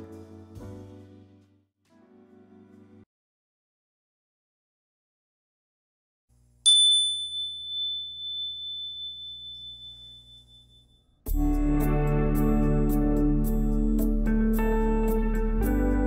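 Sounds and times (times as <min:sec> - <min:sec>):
soft instrumental music: 0:00.0 - 0:03.0, 0:11.3 - 0:16.0
bright chime ringing: 0:06.7 - 0:10.8.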